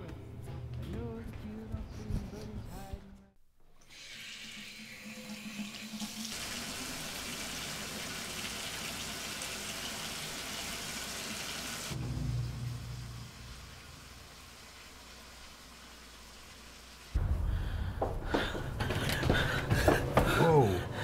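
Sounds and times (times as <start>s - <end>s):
water running: 3.8s - 17.2s
low rumble: 17.2s - 19.8s.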